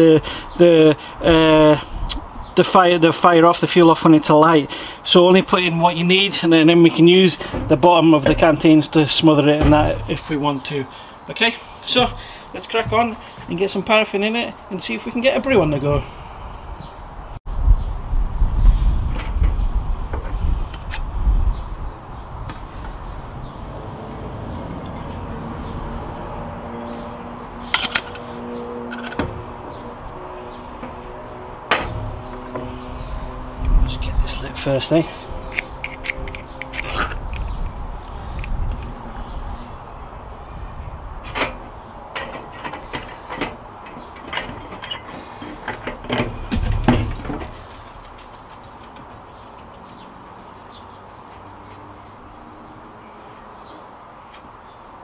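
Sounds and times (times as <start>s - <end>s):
wind buffeting microphone: 1.2s - 2.6s, 15.4s - 27.7s, 29.3s - 44.8s.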